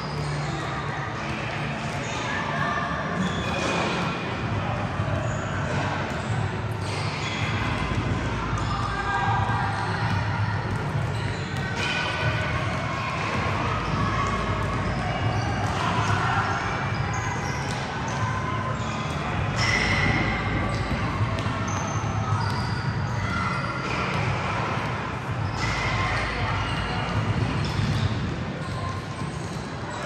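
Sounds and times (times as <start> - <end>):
basketball bouncing: 20.8 - 23.0.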